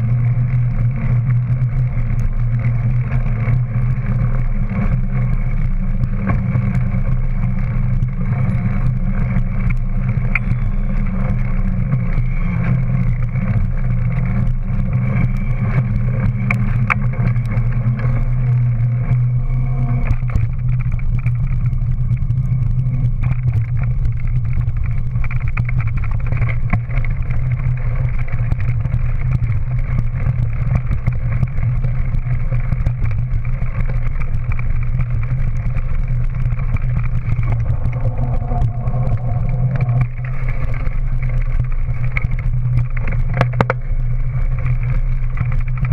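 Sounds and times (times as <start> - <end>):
bike tyre rumble on path: 0.0 - 45.9
wind on camera microphone: 0.0 - 45.9.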